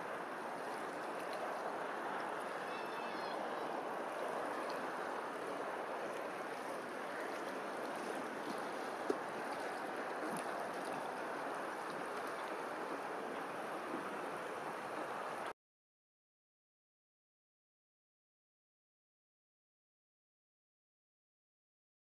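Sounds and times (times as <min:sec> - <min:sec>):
water lapping: 0:00.0 - 0:15.5.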